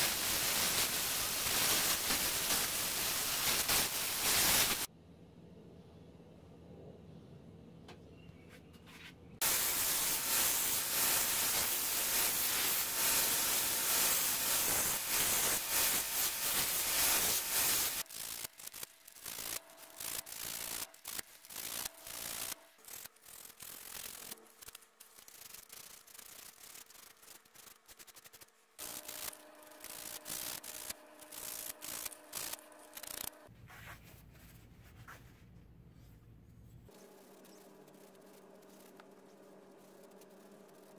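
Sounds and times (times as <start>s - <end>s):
sanding wood by hand: 9.4s - 18.0s.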